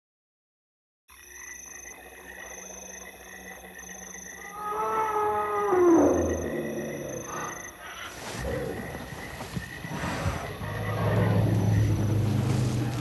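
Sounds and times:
frogs calling: 0:01.1 - 0:13.0
insects chirping: 0:01.1 - 0:13.0
drawn-out animal call: 0:04.4 - 0:13.0.

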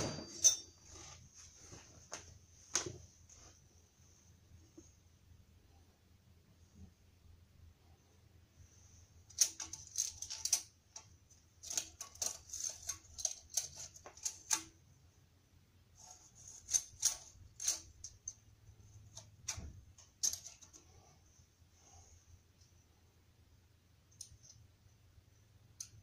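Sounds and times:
metal clamp clinking and rattling: 0:00.0 - 0:01.2, 0:09.3 - 0:14.8, 0:16.5 - 0:18.5, 0:19.1 - 0:21.0.

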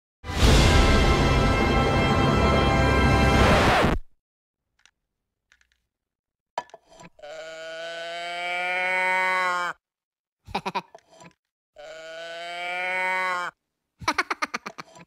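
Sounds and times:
toy mooing: 0:07.2 - 0:09.8, 0:11.8 - 0:13.6
cartoon-voice giggling: 0:10.5 - 0:11.0, 0:14.0 - 0:15.0.

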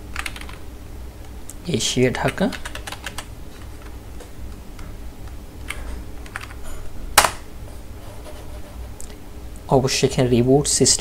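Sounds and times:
low steady hum: 0:00.0 - 0:11.0
computer keyboard keystrokes: 0:00.1 - 0:00.6, 0:02.2 - 0:03.9, 0:05.6 - 0:06.6.

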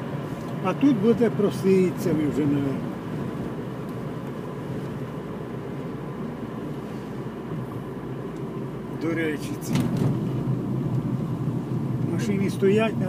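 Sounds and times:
car engine and tyres from cabin: 0:00.0 - 0:13.0.

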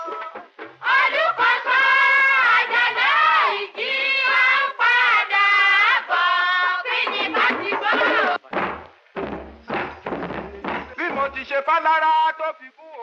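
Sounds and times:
woman singing: 0:00.0 - 0:08.4.

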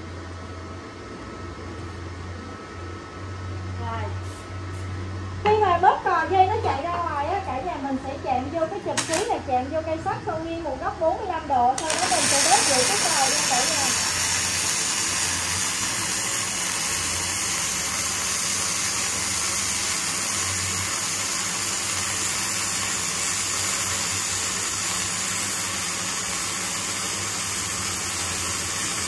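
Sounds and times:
welder arc sizzling: 0:04.2 - 0:05.0, 0:08.9 - 0:09.5, 0:11.7 - 0:29.0.

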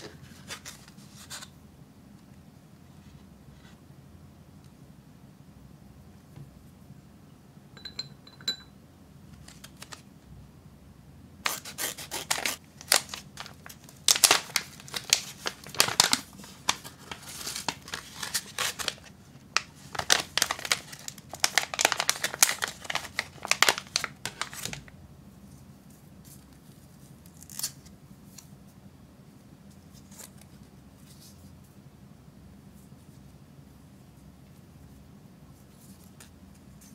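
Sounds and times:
plastic pouch crinkling: 0:11.4 - 0:24.9.

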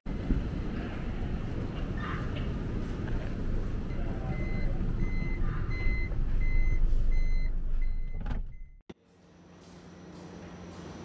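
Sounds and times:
engine and traffic rumble: 0:00.1 - 0:08.9
vehicle warning beeps: 0:03.7 - 0:08.8.

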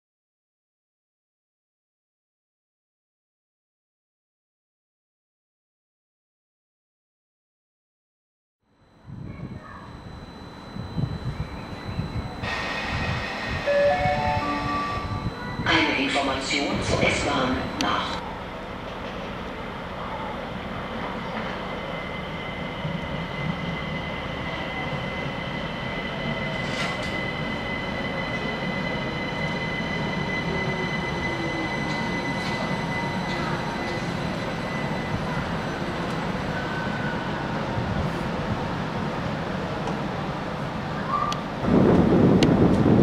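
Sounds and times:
high whine: 0:08.7 - 0:38.8
electric train braking: 0:08.7 - 0:38.9.

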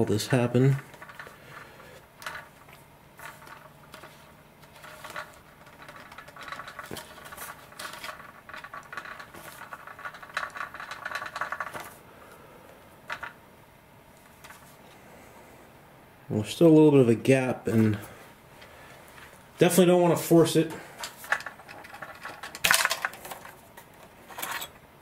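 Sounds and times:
plastic parts clicking and scraping: 0:00.0 - 0:12.0, 0:21.0 - 0:24.8
parts rattling: 0:00.0 - 0:12.4, 0:13.0 - 0:13.4, 0:17.7 - 0:24.9.

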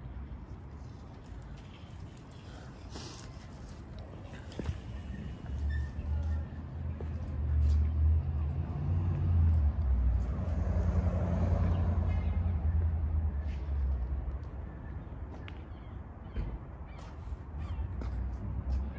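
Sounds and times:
vehicle passing: 0:06.7 - 0:13.9.

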